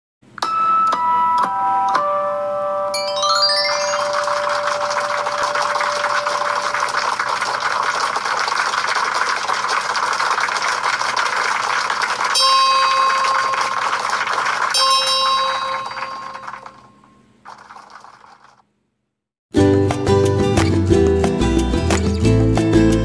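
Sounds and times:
bell-like chime tones: 0.4s - 6.9s, 12.4s - 13.7s, 14.8s - 17.0s.

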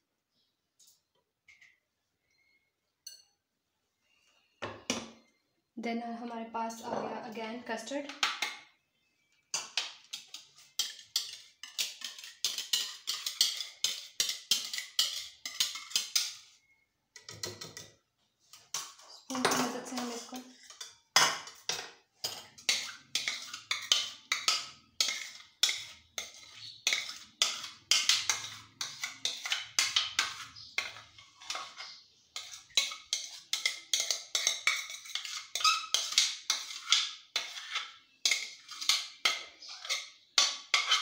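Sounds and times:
metal spoon scraping ceramic bowl: 6.8s - 7.6s, 10.0s - 16.6s, 18.5s - 41.0s.

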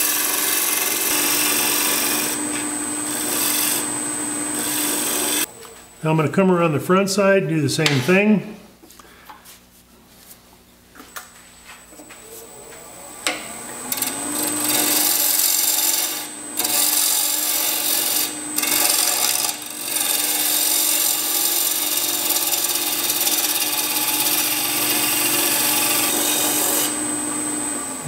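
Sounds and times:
lathe gouge shearing wood: 0.0s - 5.5s, 13.2s - 28.0s.

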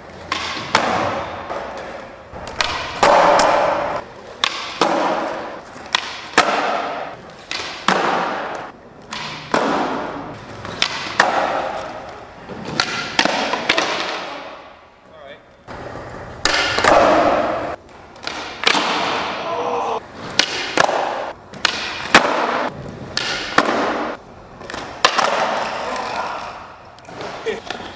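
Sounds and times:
skateboard wheels rolling on concrete: 0.0s - 14.7s, 15.7s - 27.9s
skateboard pops and landing slaps: 0.3s - 12.0s, 12.7s - 14.5s, 16.4s - 19.4s, 20.3s - 25.8s.

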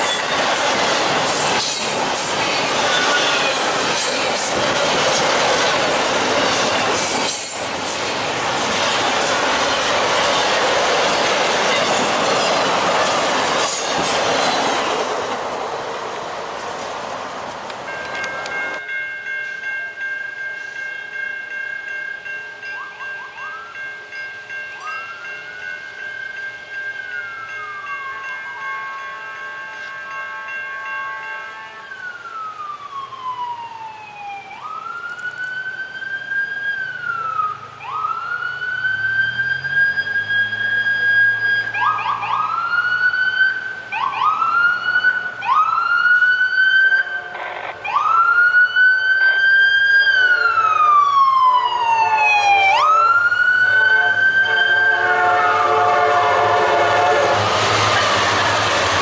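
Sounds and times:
approaching train: 0.0s - 59.0s
diesel locomotive hum: 22.1s - 59.0s
siren wailing: 31.7s - 59.0s.

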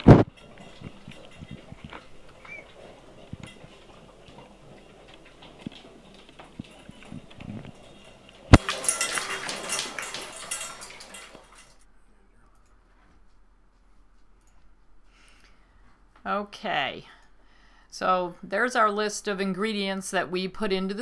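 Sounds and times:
bowls clattering and scraping: 0.0s - 11.8s
dogs eating from metal bowls: 0.0s - 11.8s.

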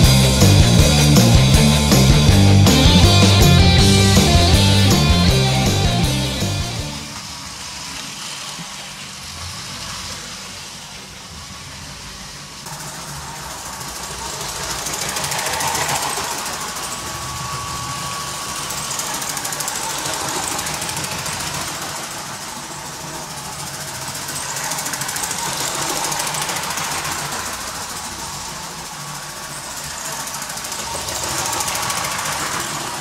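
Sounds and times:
toy trains rattling on track: 7.0s - 33.0s.

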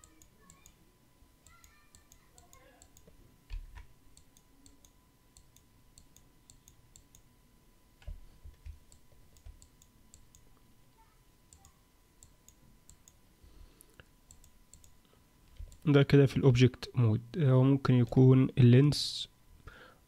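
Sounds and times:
computer mouse clicks: 0.0s - 0.8s, 1.4s - 7.3s, 8.0s - 10.5s, 11.5s - 13.2s, 13.8s - 15.9s.

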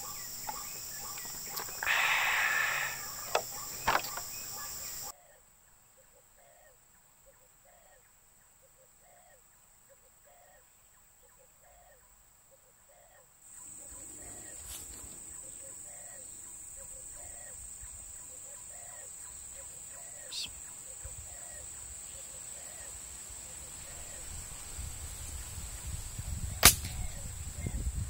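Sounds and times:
waterhen calling: 0.0s - 5.1s
background hiss: 0.0s - 28.0s.

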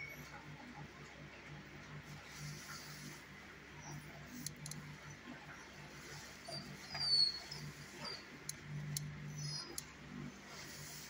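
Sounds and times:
steady low hum: 0.0s - 11.0s
dog whimpering: 6.4s - 8.4s.

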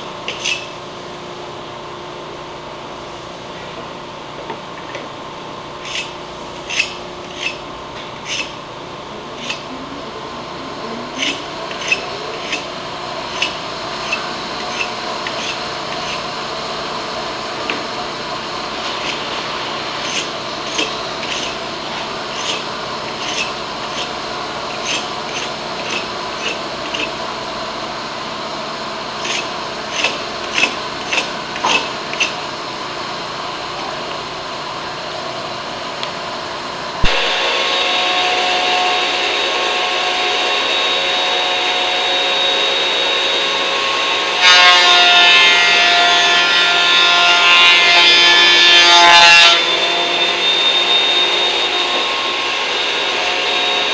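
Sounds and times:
workshop machine running: 0.0s - 53.9s
scraper scraping glue off wood: 11.2s - 12.7s, 13.3s - 16.3s, 20.0s - 21.6s, 22.2s - 27.1s, 29.2s - 32.4s
planer motor whine: 36.8s - 53.9s.

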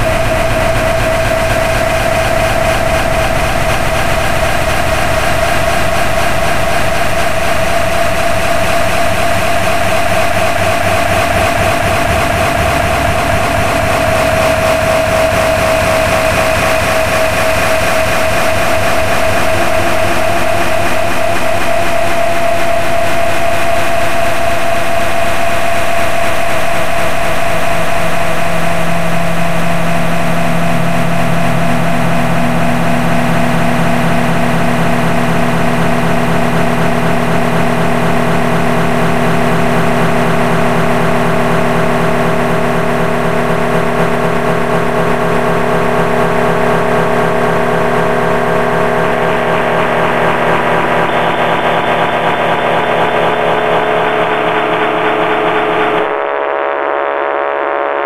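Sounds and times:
harsh noise music drone: 0.0s - 58.0s.

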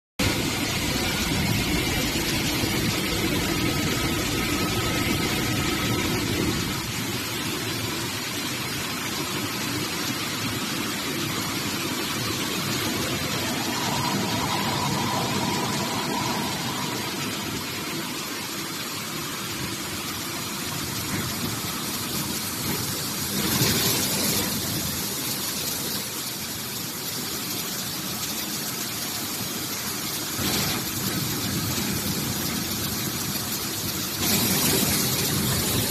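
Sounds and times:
production line machinery hiss: 0.2s - 35.9s
brief loud rush: 12.7s - 18.4s.

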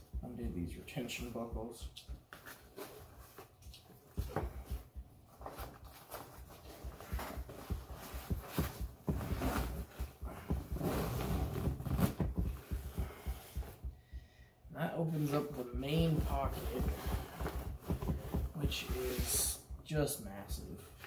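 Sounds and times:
fabric rustling and knocking: 0.0s - 14.0s, 15.4s - 19.3s
zipper being opened: 10.7s - 12.2s.

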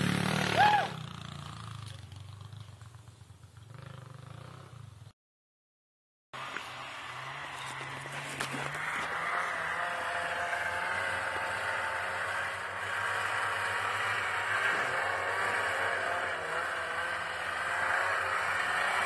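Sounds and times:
snowmobile engine running: 6.4s - 19.0s.

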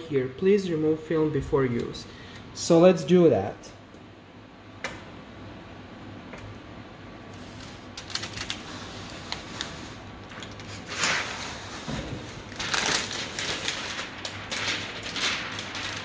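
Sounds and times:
plastic film peeling off metal: 7.4s - 16.0s.

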